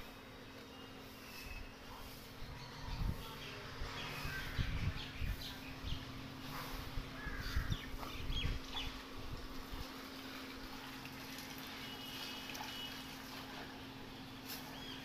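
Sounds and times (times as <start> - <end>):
birds chirping: 0.1 - 9.1, 13.8 - 15.0
low rumbling on microphone: 2.5 - 9.8.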